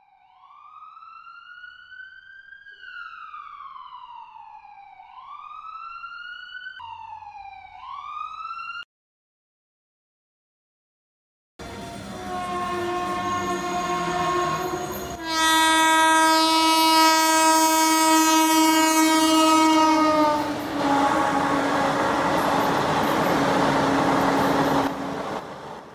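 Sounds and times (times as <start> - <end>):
train horn blasts: 11.6 - 25.2
passing train rushing: 11.6 - 25.9.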